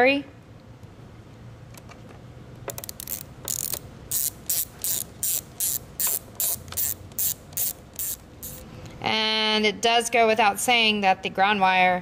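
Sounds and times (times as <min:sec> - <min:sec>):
socket ratchet clicking: 0:02.7 - 0:08.6.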